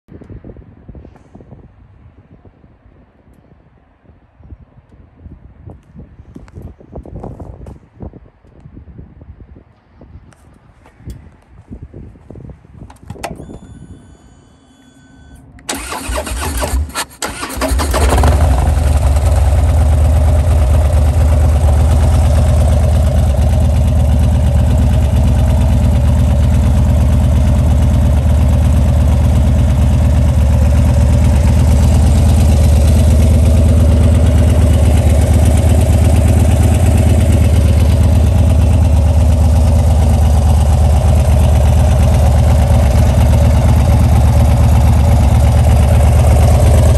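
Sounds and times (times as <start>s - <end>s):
faint whine: 13.2s - 15.6s
starter motor cranking: 15.6s - 18.6s
motorcycle engine idling: 18.1s - 46.9s.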